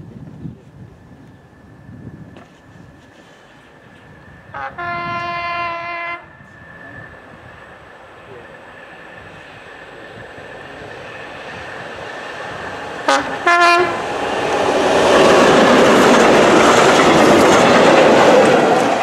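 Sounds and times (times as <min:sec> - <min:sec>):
train wheels on rails: 0:01.2 - 0:19.0
locomotive horn blasts: 0:04.5 - 0:06.3, 0:13.1 - 0:14.0.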